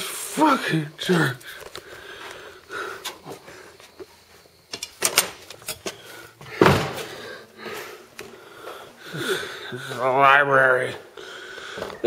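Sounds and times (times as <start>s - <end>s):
thump: 6.6s - 7.1s.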